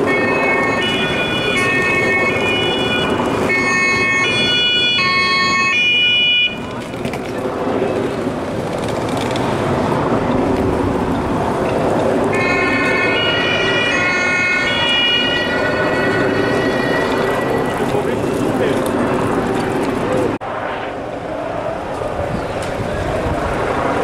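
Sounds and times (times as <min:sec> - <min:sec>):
two-tone emergency siren: 0:00.0 - 0:06.8, 0:12.2 - 0:18.8
crowd noise: 0:00.0 - 0:24.0
street traffic: 0:00.0 - 0:24.0.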